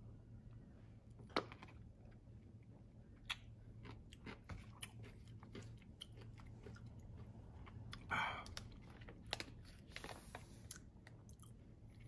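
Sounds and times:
crunchy pickle chewing: 0:03.2 - 0:12.0.

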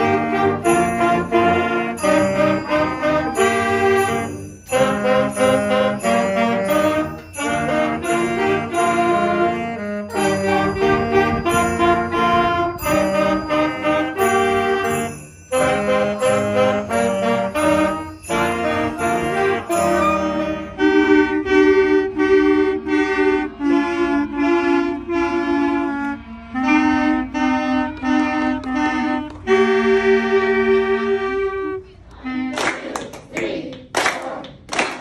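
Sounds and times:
band playing sustained notes: 0:00.0 - 0:31.9
clarinet and saxophone melody: 0:00.0 - 0:32.6
people clapping: 0:32.5 - 0:35.0.

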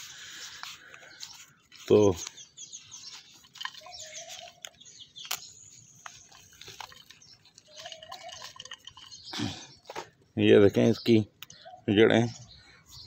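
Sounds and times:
plastic pot crinkling: 0:00.0 - 0:10.2
soil rustling: 0:00.0 - 0:10.6.

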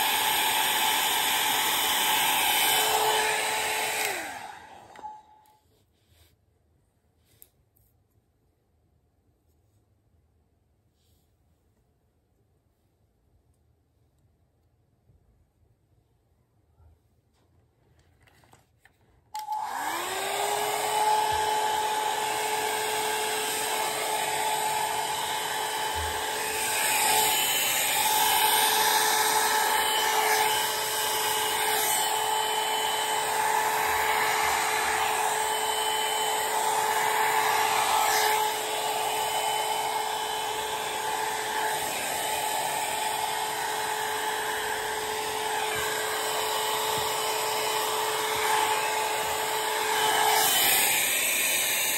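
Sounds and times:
hair dryer whine and air rush: 0:00.0 - 0:05.6, 0:19.4 - 0:51.9.

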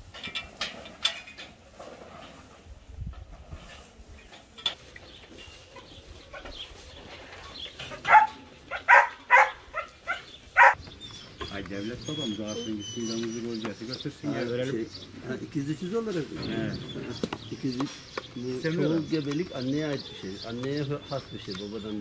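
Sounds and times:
farm animal cries: 0:07.4 - 0:13.6.

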